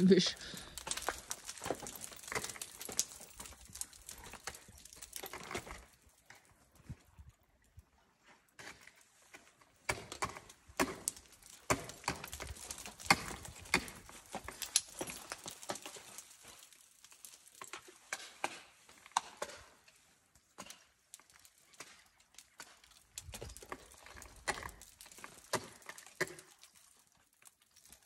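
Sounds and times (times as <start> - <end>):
ice tools striking ice: 0.6 - 5.9, 9.9 - 19.8, 20.5 - 26.9.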